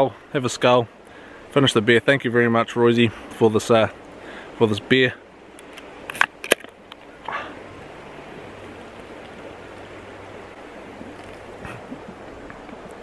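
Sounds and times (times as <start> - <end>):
stream water rushing: 0.0 - 13.0
short breath: 1.1 - 1.5, 4.2 - 4.6, 7.3 - 7.6.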